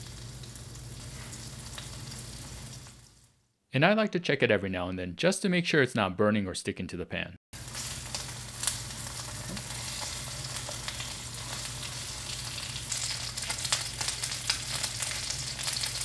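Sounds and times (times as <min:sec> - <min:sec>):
chicken sizzling in a pan: 0:00.0 - 0:03.4, 0:07.6 - 0:16.0.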